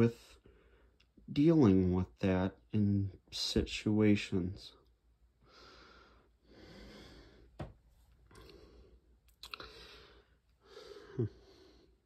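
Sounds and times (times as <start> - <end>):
person breathing: 0.4 - 1.0, 5.4 - 7.7, 8.3 - 12.0.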